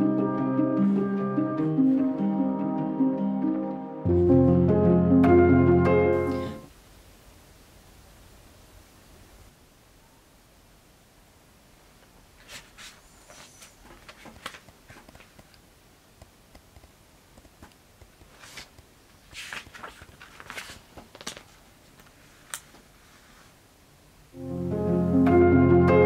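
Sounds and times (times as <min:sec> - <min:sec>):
bedclothes rustling: 0:12.2 - 0:15.6, 0:17.5 - 0:23.7
book pages rustling and clicking: 0:12.4 - 0:15.6, 0:16.6 - 0:22.9.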